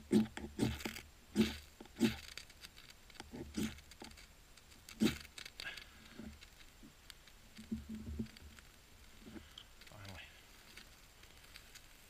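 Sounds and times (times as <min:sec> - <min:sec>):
ferro rod scraping on bark: 0:00.0 - 0:06.9.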